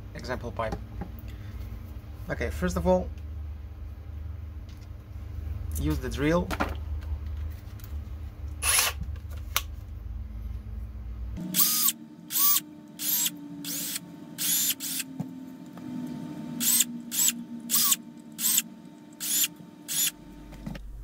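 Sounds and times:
power drill bursts: 8.6s - 9.0s, 11.5s - 15.1s, 16.6s - 18.6s, 19.2s - 20.2s.

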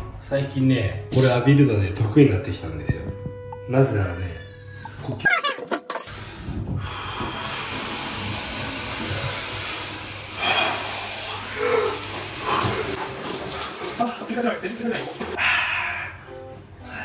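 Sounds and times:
shower spraying water: 6.0s - 15.4s.

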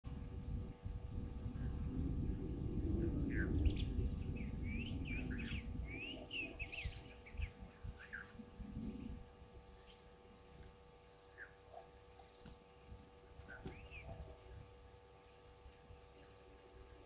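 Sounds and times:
high-pitched insect drone: 0.1s - 12.3s, 13.3s - 17.0s
low uneven rumble: 0.1s - 17.0s
bird singing whistled notes: 3.0s - 8.4s, 13.5s - 14.2s.

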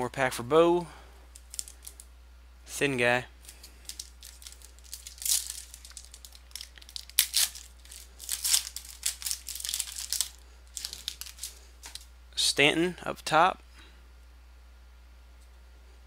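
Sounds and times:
foil wrapper crinkling: 1.3s - 2.1s, 3.4s - 12.1s.

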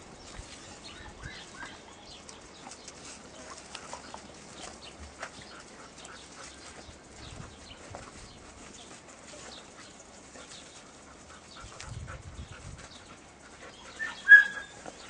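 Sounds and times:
paws scraping on dirt: 0.0s - 15.0s
dog high chirps: 14.0s - 14.9s.

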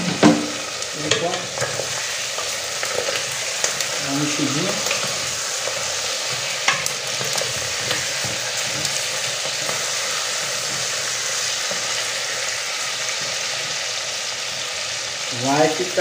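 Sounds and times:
meat sizzling in hot oil: 0.0s - 16.0s.

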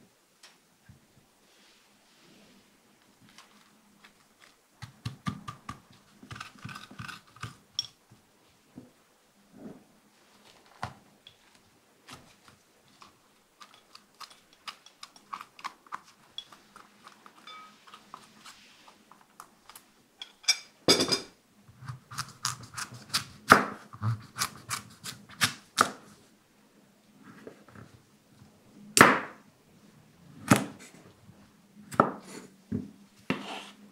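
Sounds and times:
spoon scraping seeds into bowl: 13.6s - 19.1s.

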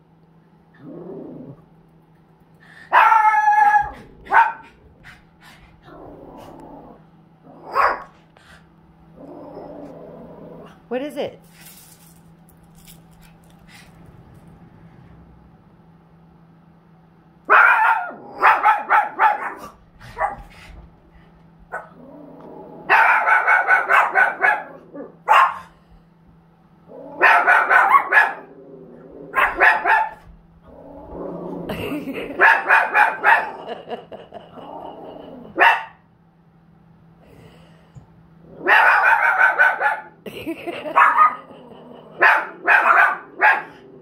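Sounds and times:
low steady hum: 0.0s - 44.0s
small dogs barking: 2.9s - 4.8s, 7.6s - 8.2s, 17.5s - 20.5s, 22.8s - 25.7s, 27.1s - 28.6s, 29.3s - 30.3s, 31.9s - 34.0s, 35.5s - 36.0s, 38.5s - 43.9s.

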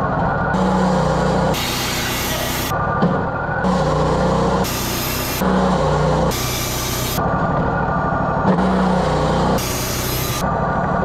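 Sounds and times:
sawmill engine running: 0.0s - 11.0s
band blade cutting wood: 1.5s - 2.7s, 3.7s - 7.2s, 8.5s - 10.4s.

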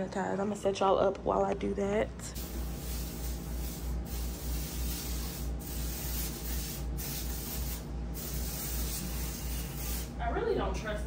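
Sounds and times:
aerosol spray can hissing: 2.4s - 10.2s.

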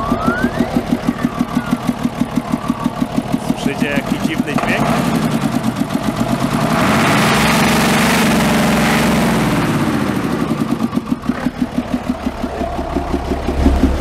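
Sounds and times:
engine pulsing idle: 0.0s - 14.0s
truck engine revving: 0.0s - 14.0s.

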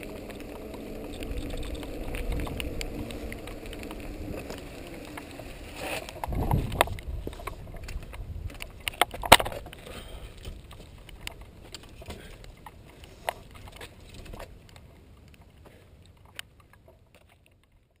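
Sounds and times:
low rumble: 0.0s - 11.6s
bike clicks and rattles: 0.0s - 18.0s.

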